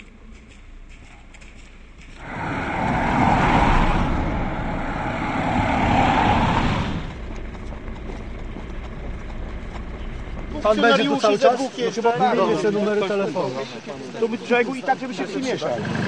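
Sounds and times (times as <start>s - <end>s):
car driving past on wet road: 2.1s - 8.4s
low rumble: 2.1s - 10.6s.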